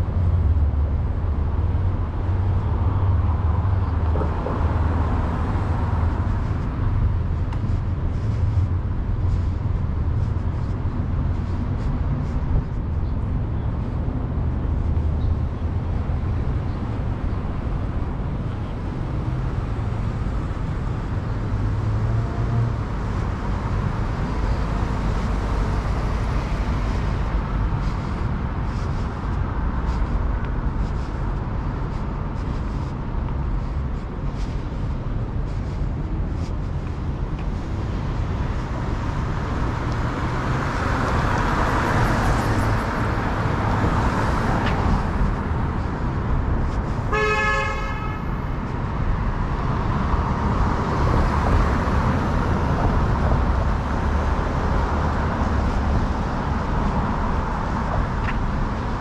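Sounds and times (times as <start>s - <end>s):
street traffic rumble: 0.0s - 59.0s
vehicle horn: 47.1s - 48.4s.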